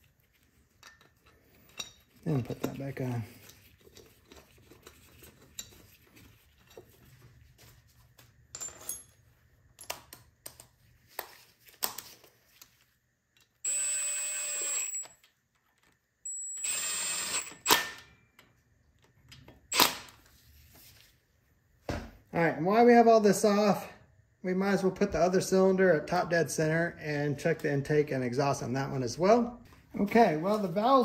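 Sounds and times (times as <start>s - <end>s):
cordless power driver whine: 13.6s - 15.1s, 16.6s - 17.8s.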